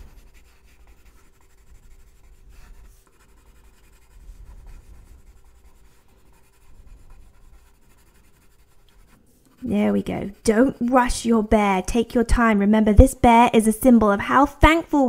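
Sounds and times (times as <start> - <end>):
pencil scratching on paper: 0.0 - 11.5.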